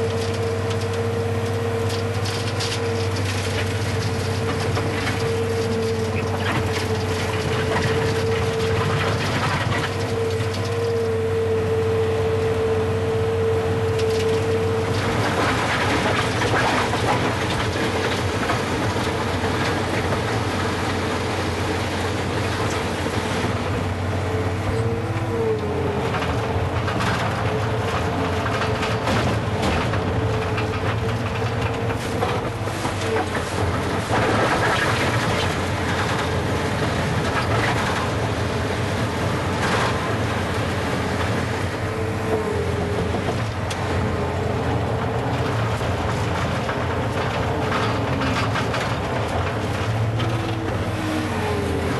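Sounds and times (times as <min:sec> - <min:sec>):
loader engine drone: 0:00.0 - 0:51.9.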